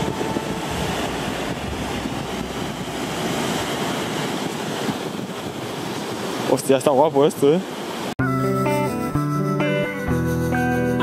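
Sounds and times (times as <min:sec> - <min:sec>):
wind buffeting microphone: 0:00.0 - 0:08.0
stream cascading over weir: 0:00.0 - 0:08.2.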